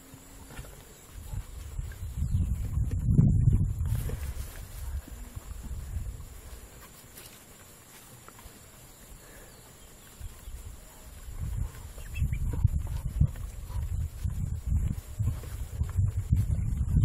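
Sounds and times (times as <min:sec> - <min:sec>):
ducks calling softly: 0:08.3 - 0:14.2.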